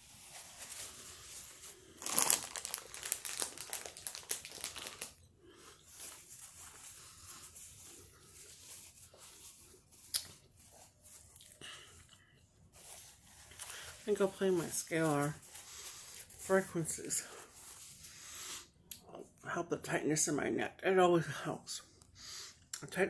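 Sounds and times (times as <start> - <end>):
crinkling and rustling: 0.0 - 18.0
person chewing snack: 1.8 - 5.2.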